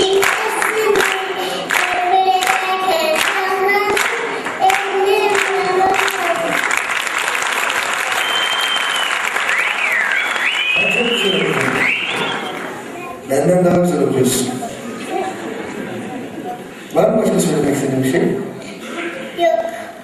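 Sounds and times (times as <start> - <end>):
girl singing into microphone: 0.0 - 6.6
audience applauding: 0.0 - 12.9.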